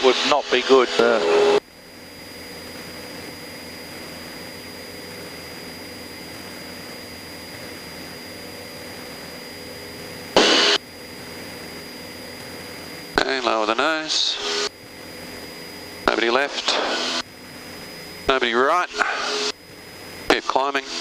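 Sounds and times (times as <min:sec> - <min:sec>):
light aircraft engine drone: 0:00.0 - 0:21.0
loud burst of noise: 0:10.3 - 0:10.8, 0:13.1 - 0:15.2, 0:15.8 - 0:17.4, 0:18.3 - 0:19.6, 0:20.3 - 0:21.0.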